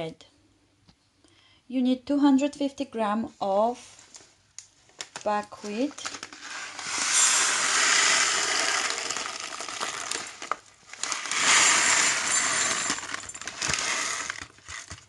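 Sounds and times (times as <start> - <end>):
grains pouring into glass bowl: 6.4 - 14.4.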